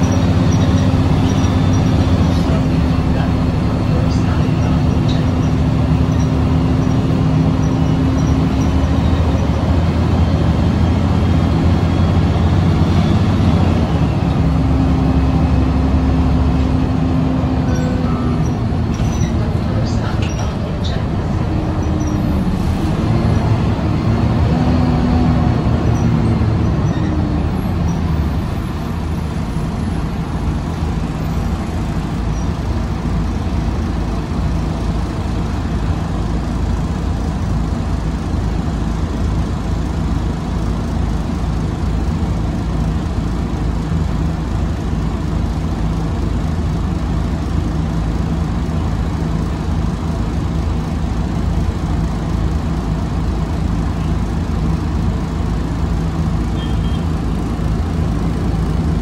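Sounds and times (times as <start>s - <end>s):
pitched engine drone: 0.0s - 34.9s
bus engine and road rumble: 0.0s - 59.0s.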